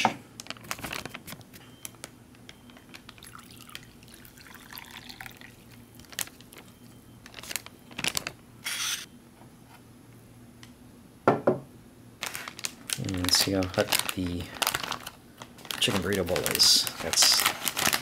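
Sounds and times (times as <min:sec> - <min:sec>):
coffee trickling into mug: 0:03.2 - 0:06.7.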